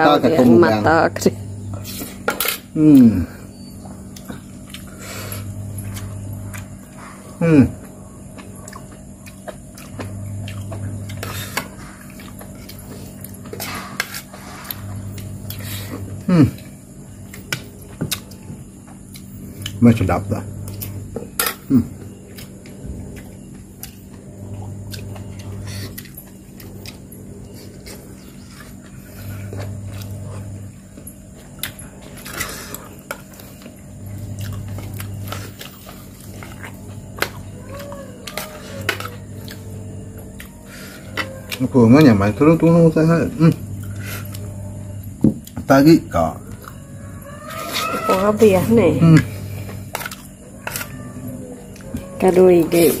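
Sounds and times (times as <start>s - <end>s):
deep drone: 0.0s - 18.5s, 19.4s - 52.2s
low steady hum: 0.0s - 53.0s
chewing: 1.7s - 19.8s, 20.6s - 42.2s, 46.4s - 53.0s.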